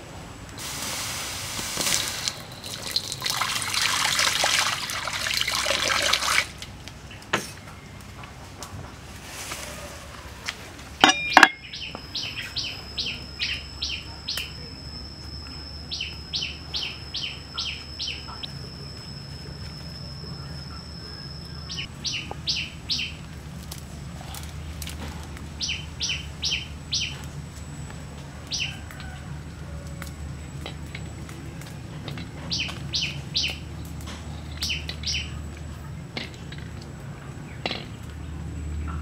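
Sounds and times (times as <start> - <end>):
thin high tone: 11.0 - 21.8
bird chirping: 11.0 - 23.2.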